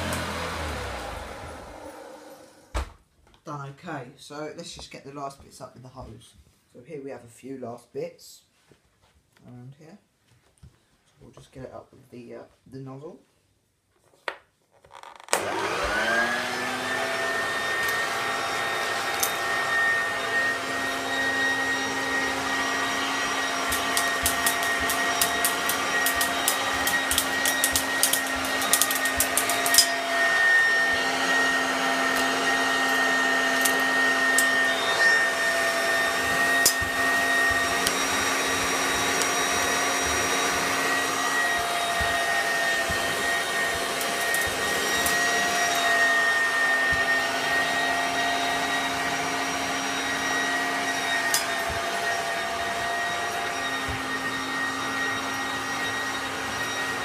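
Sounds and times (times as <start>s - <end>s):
vacuum cleaner whine: 0.0s - 3.0s, 15.3s - 57.0s.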